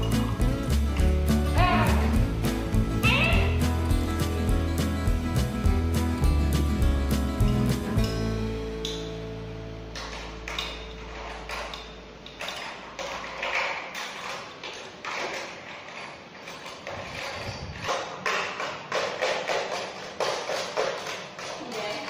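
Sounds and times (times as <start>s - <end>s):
music: 0.0s - 13.2s
small objects clicking and rattling: 10.0s - 22.0s.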